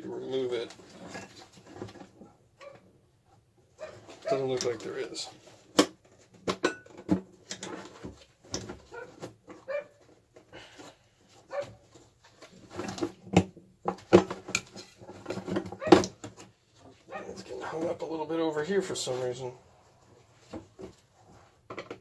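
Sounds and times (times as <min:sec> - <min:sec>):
dogs barking: 0:03.8 - 0:04.4, 0:09.7 - 0:10.0, 0:11.5 - 0:11.8, 0:17.1 - 0:17.4.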